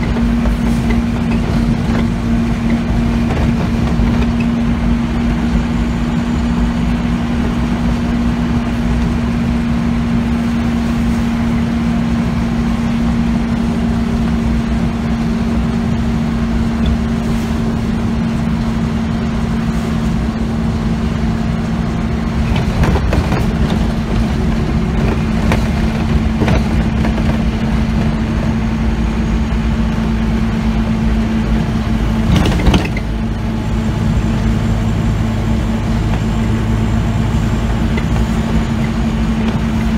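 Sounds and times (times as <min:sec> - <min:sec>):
knocks and rattles from bumps: 0:00.0 - 0:04.7, 0:22.3 - 0:28.6, 0:32.2 - 0:33.2
bus engine hum: 0:00.0 - 0:39.9
road rumble: 0:00.0 - 0:39.9.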